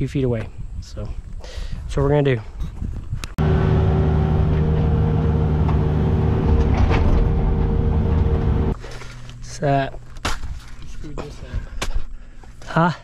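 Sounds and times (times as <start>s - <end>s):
engine running steadily: 3.4s - 8.8s.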